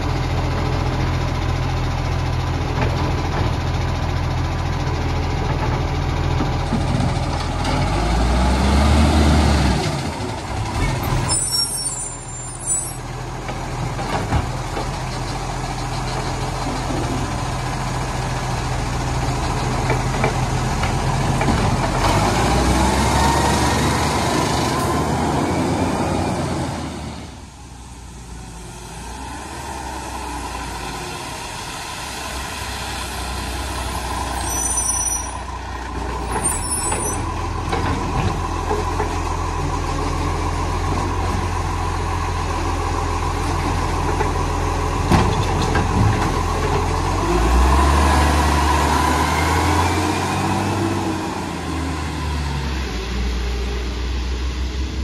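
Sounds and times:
garbage truck diesel engine: 0.0 - 55.0
high squeals: 11.1 - 13.1, 34.0 - 35.5, 36.3 - 37.3.

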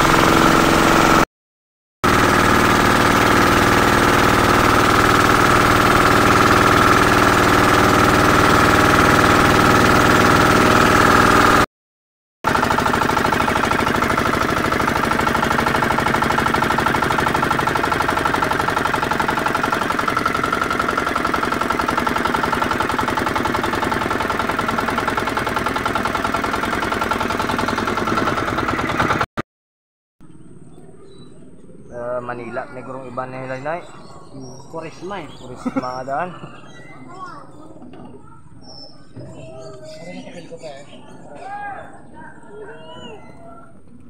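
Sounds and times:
boat engine running: 0.0 - 1.2, 2.0 - 11.7, 12.5 - 29.3.

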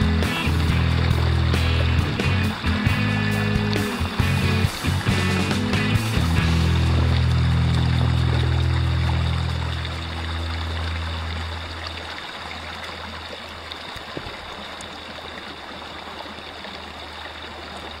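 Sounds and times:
music: 0.0 - 11.5
creek water flowing: 0.0 - 18.0.

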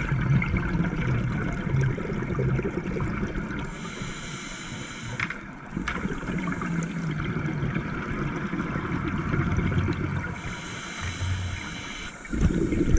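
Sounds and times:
underwater bubbling rumble: 0.0 - 3.8, 5.4 - 10.6, 11.2 - 12.9
low hum: 9.5 - 12.9.

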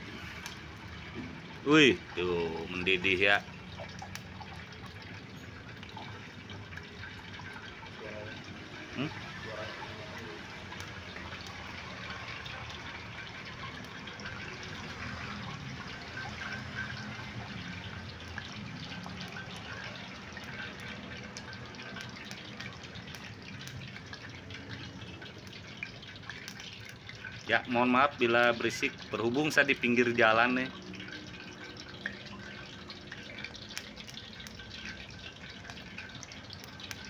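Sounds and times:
oil hissing and crackling in pan: 0.0 - 37.0
roadside traffic rumble: 2.6 - 25.5.

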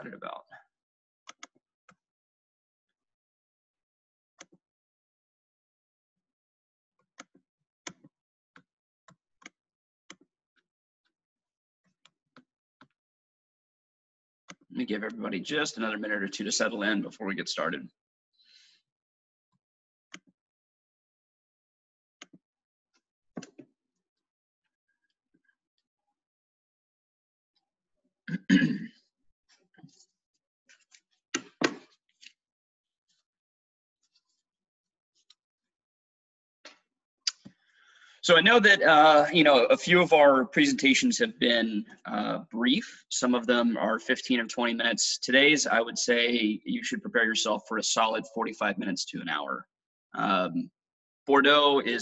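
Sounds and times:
person clearing throat: 28.3 - 29.0
person coughing: 28.3 - 29.0.

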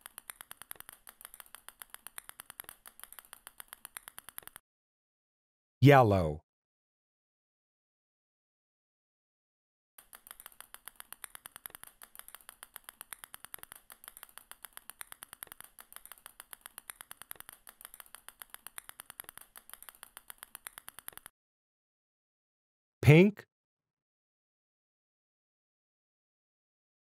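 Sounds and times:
small balls clicking onto pile: 0.0 - 4.6, 10.0 - 21.3.

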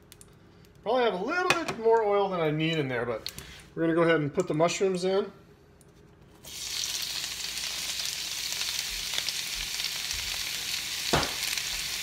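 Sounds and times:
mushrooms sizzling in oil: 6.4 - 12.0.

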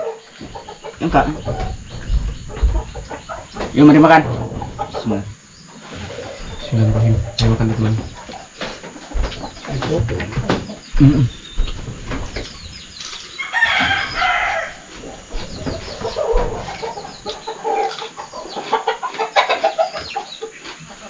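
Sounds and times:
rooster crowing: 13.3 - 18.0.

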